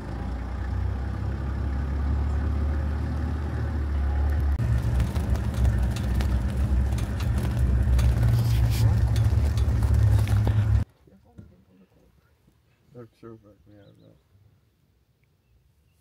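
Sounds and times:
vehicle engine running: 0.0 - 10.8
vehicle body rattling and knocking: 4.4 - 10.8.

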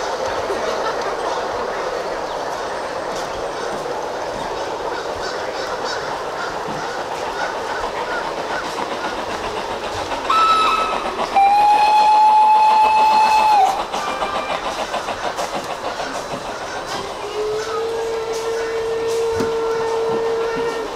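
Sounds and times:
model train rattling on track: 0.0 - 20.9
model train horn toot: 11.4 - 13.8, 17.5 - 20.9.

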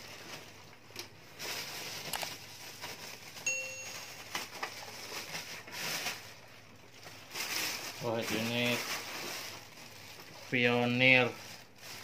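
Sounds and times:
plastic bags rustling: 0.0 - 12.0
steady high tone: 3.5 - 4.6.

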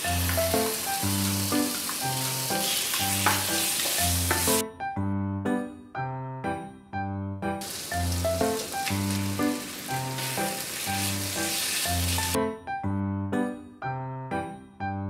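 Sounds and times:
chicken sizzling in a frying pan: 0.0 - 4.6, 7.6 - 12.4
background music: 0.0 - 15.0.

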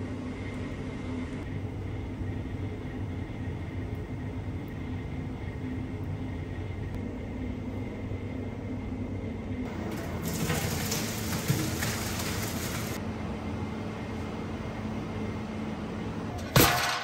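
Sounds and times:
kitchen hum: 9.6 - 13.0
liquid pouring and splashing into pot: 10.0 - 13.0.

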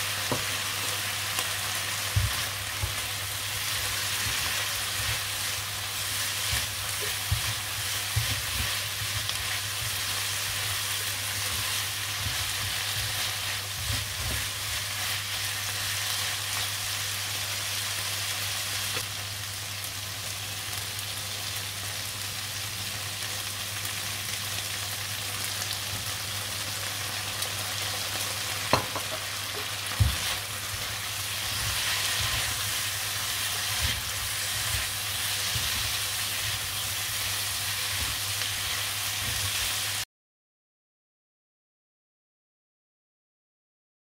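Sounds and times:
food sizzling in a pan: 0.0 - 40.1
utensil knocking on pan: 28.7 - 29.2.

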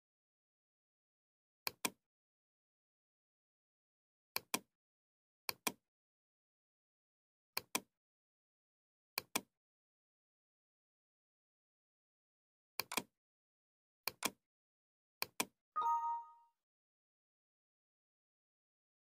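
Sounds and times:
mouse button clicks: 15.2 - 16.4.

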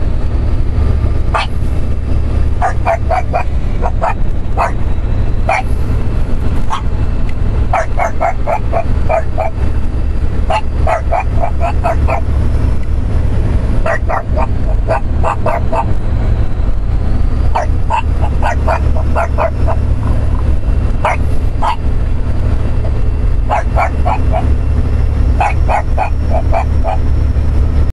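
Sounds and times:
truck low rumble: 0.0 - 27.9
dog barking: 1.3 - 1.6, 2.6 - 4.8, 5.4 - 5.7, 6.7 - 6.9, 7.7 - 9.6, 10.5 - 12.3, 13.8 - 16.0, 17.5 - 20.2, 21.0 - 21.9, 23.4 - 24.5, 25.4 - 27.1.

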